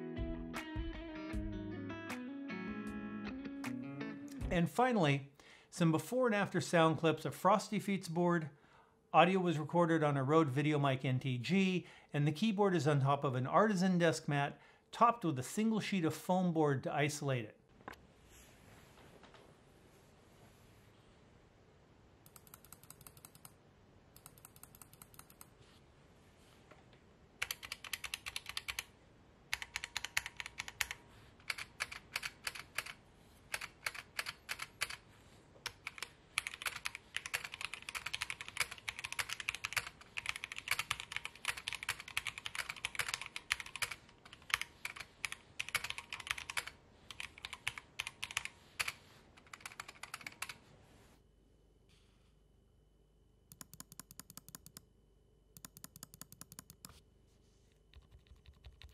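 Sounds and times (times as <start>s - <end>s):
mechanical keyboard typing: 22.3s - 23.6s, 24.2s - 25.5s, 27.4s - 28.9s, 29.5s - 35.0s, 35.6s - 50.6s, 53.5s - 54.8s, 55.6s - 57.0s, 57.9s - 58.9s.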